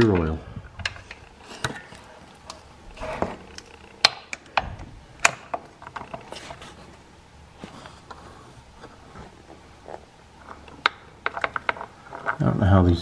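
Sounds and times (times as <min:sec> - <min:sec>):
metal clicks and knocks: 0:00.0 - 0:02.6, 0:03.2 - 0:06.3, 0:10.5 - 0:12.4.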